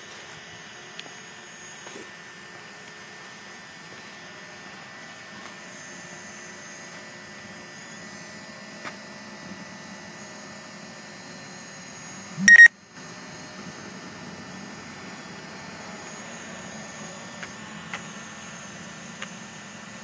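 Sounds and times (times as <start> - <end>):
drone propellers whining: 0.5 - 20.0
short electronic beep: 12.4 - 12.7.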